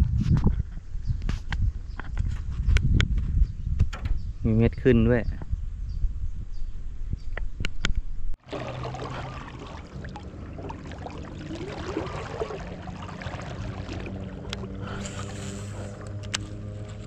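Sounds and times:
steady low hum: 0:08.4 - 0:17.0
water lapping around boat: 0:08.4 - 0:17.0.

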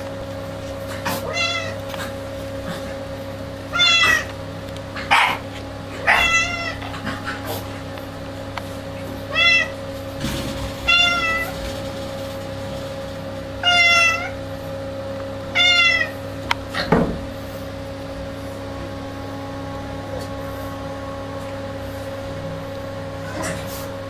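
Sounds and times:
cat meowing: 0:01.2 - 0:01.8, 0:03.7 - 0:04.3, 0:06.0 - 0:07.1, 0:09.3 - 0:09.8, 0:10.9 - 0:11.5, 0:13.6 - 0:14.4, 0:15.6 - 0:16.2.

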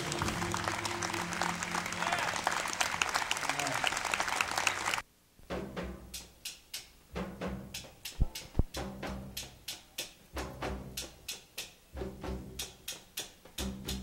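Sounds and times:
double bass notes: 0:00.0 - 0:02.3
ride cymbal swing pattern: 0:05.5 - 0:14.0.

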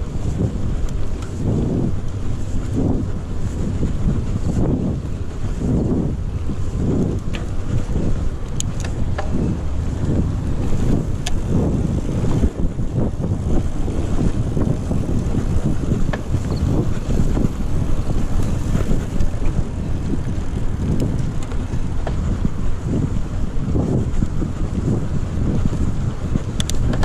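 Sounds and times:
bike rattling: 0:00.0 - 0:27.0
wind buffeting microphone: 0:00.0 - 0:27.0
tyres rolling on dirt: 0:13.3 - 0:22.6.

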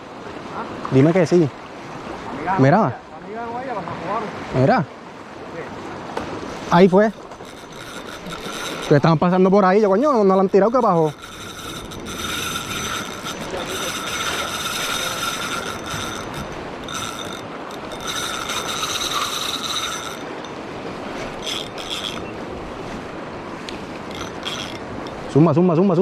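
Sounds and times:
fishing reel gear whine: 0:06.5 - 0:25.5.

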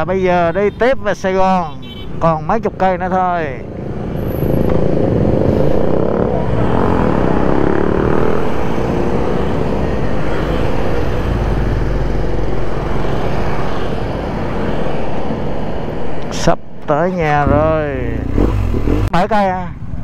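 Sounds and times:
wind and road noise: 0:00.0 - 0:20.0
motorcycle engine accelerating: 0:04.4 - 0:10.0, 0:17.4 - 0:19.2.

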